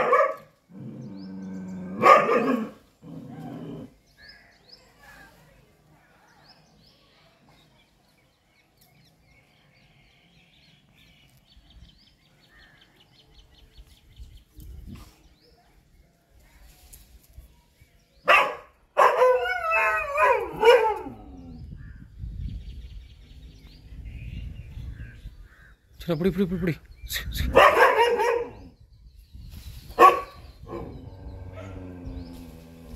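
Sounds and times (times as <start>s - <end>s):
dog barking: 0.0s - 0.5s, 2.0s - 2.8s, 18.3s - 21.2s, 27.5s - 28.7s, 30.0s - 30.9s.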